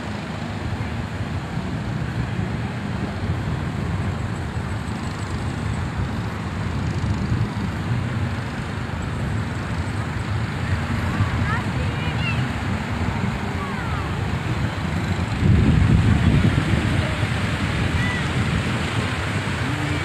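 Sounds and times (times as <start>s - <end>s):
wind rumbling on microphone: 0.0s - 20.0s
small waves breaking on shore: 7.8s - 20.0s.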